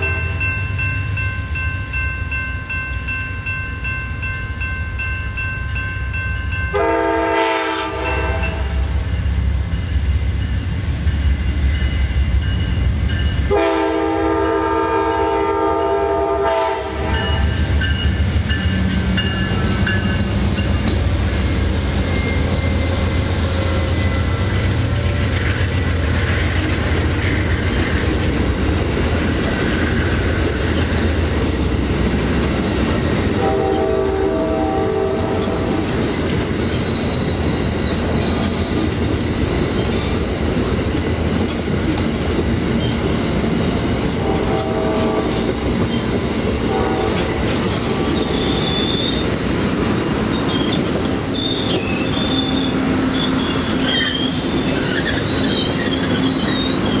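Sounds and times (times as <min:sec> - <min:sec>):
locomotive engine hum: 0:06.7 - 0:57.0
train wheels clickety-clack: 0:16.1 - 0:57.0
wheel squeals: 0:34.8 - 0:40.7, 0:47.6 - 0:57.0.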